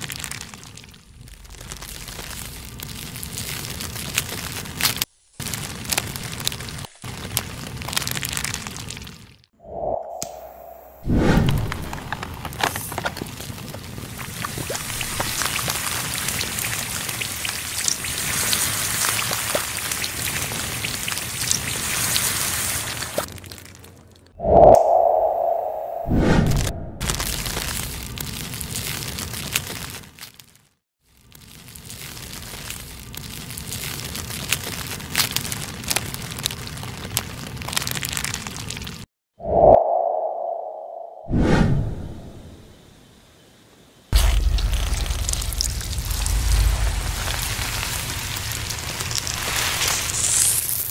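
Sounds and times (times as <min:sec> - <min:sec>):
sizzling hiss with crackles: 0:00.0 - 0:09.5, 0:11.6 - 0:23.9, 0:31.1 - 0:39.1, 0:42.6 - 0:50.9.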